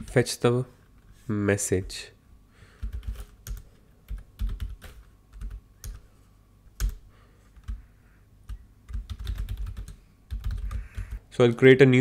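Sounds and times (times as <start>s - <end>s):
computer keyboard typing: 2.8s - 6.0s, 6.8s - 7.0s, 7.6s - 7.8s, 8.5s - 11.2s.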